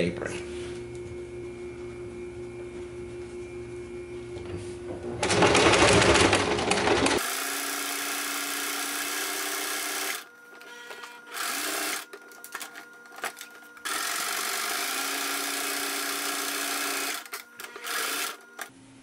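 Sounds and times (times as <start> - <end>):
sewing machine stitching: 5.2 - 12.7, 13.8 - 18.7.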